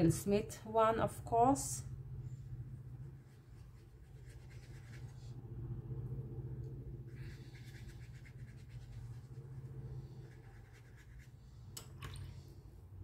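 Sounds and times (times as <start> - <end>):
steady low hum: 0.0 - 13.0
paintbrush scratchy strokes: 2.2 - 11.7.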